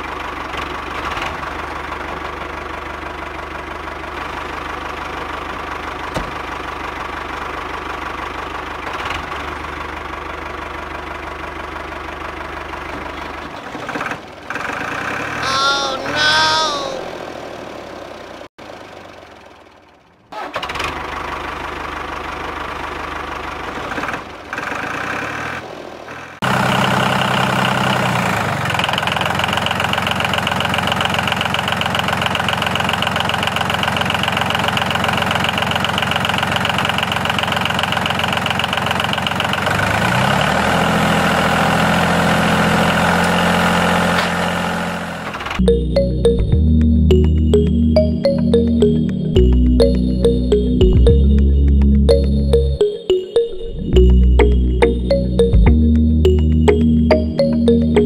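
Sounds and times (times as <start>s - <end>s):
tractor engine idling: 0.0s - 15.4s, 17.1s - 25.0s, 26.5s - 39.8s.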